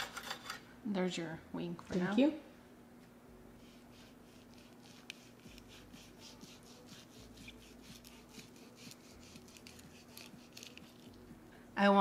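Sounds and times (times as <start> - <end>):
knife sawing through roast chicken: 3.6 - 11.1.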